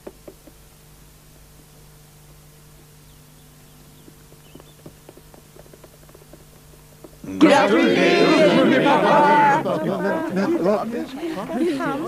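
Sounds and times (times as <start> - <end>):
faint low hum: 0.0 - 12.0
cartoon running footsteps: 4.0 - 7.2.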